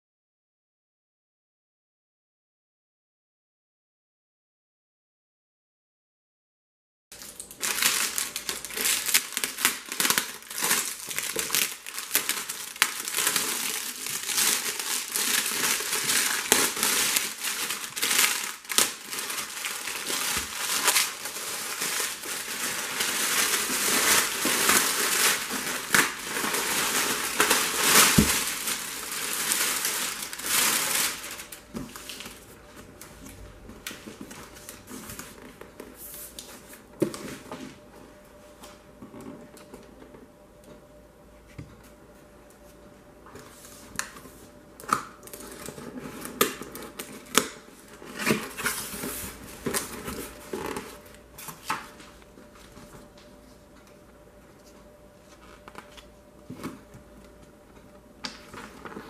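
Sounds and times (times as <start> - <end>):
plastic shrink wrap crinkling: 7.2 - 32.6, 44.8 - 52.5.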